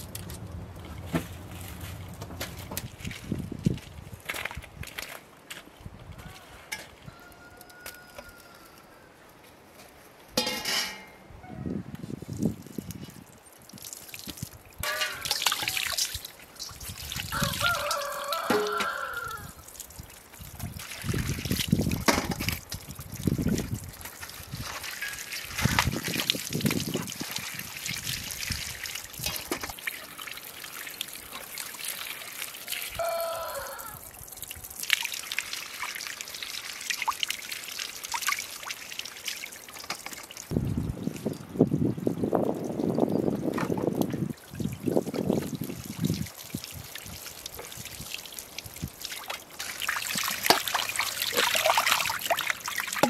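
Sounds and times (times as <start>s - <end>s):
tap water splashing on produce: 13.6s - 33.0s, 34.4s - 40.6s, 43.4s - 53.0s.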